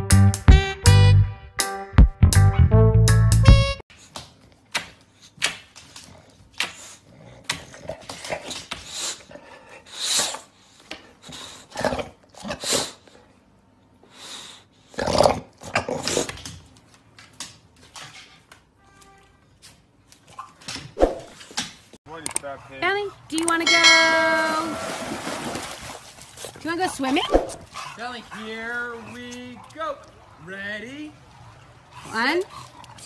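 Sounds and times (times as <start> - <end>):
background music: 0.0 - 3.8.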